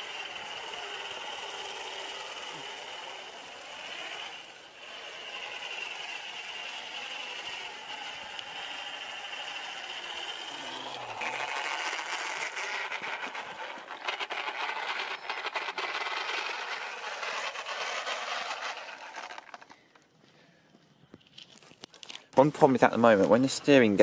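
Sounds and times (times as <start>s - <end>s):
electric motor whining: 0.0s - 19.7s
rattling clicks of running gear: 21.1s - 22.4s.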